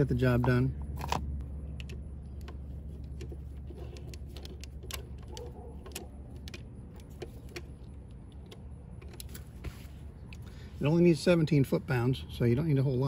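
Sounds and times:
steady low hum: 0.0 - 13.0
socket ratchet clicking: 0.8 - 9.5.

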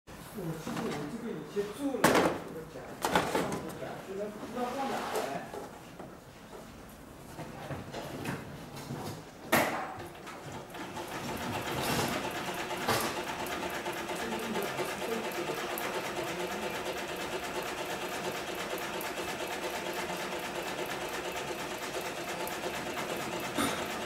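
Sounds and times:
sewing machine stitching: 10.6 - 24.0.

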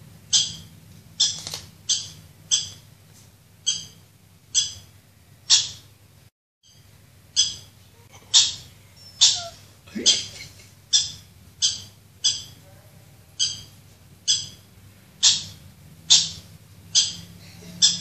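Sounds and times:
puppy yelps through phone speaker: 9.2 - 9.6.

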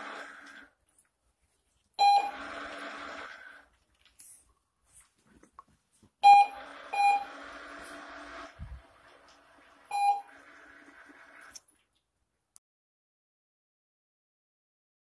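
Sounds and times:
motor whirring: 2.0 - 3.7, 6.3 - 11.6
short beeps: 9.9 - 10.3.

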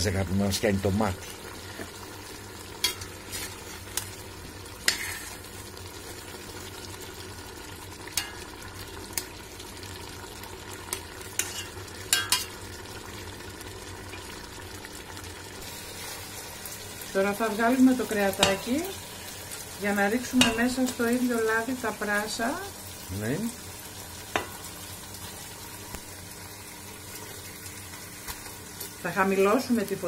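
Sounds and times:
meat sizzling in a pot: 0.0 - 30.0
metal spoon scraping a pot: 4.8 - 5.4, 11.4 - 12.6.

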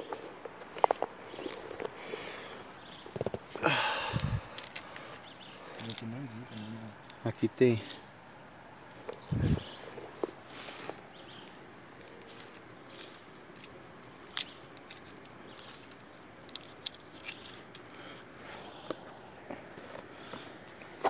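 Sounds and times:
faint high hum: 0.0 - 21.0
small clicks and crackles: 4.2 - 9.3, 9.9 - 18.2.

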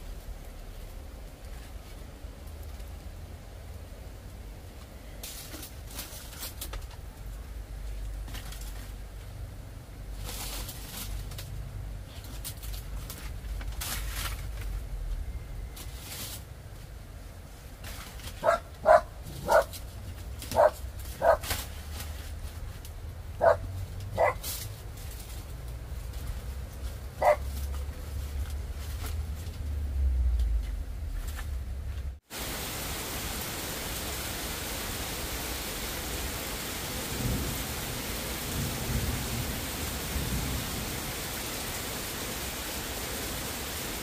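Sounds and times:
leaves rustling: 0.0 - 44.0
dog barking: 18.4 - 19.7, 20.5 - 21.4, 23.4 - 24.4, 27.2 - 27.5.

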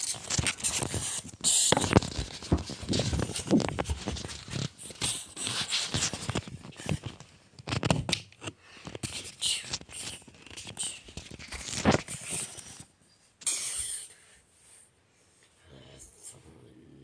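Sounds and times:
clothing rubbing on microphone: 0.0 - 7.9.

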